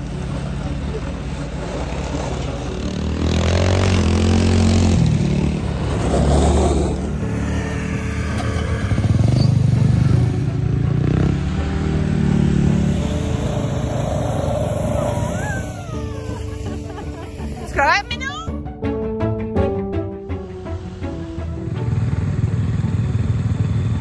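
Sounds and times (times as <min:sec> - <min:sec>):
snowmobile engines revving: 0:00.0 - 0:18.5.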